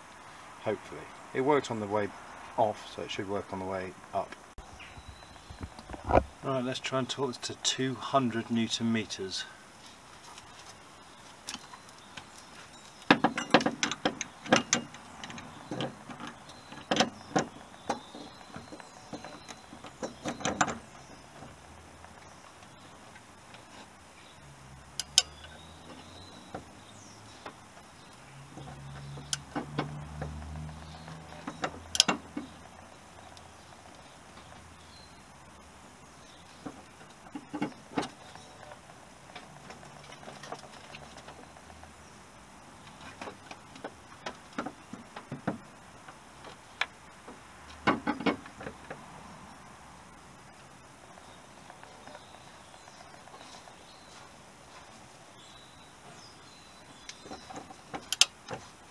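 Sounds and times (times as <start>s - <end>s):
torque wrench clicking: 25.0s - 25.5s, 31.9s - 32.2s.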